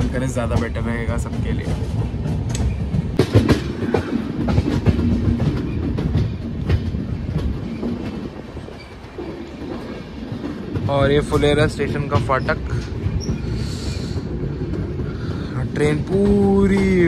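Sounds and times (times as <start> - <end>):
train wheels clattering over rails: 0.0 - 17.0.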